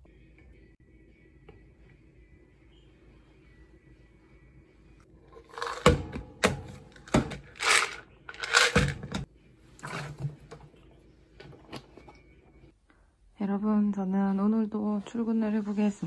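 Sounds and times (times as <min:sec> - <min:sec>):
lids clicking and knocking: 0:05.5 - 0:09.2
bottle rattling: 0:07.1 - 0:09.2.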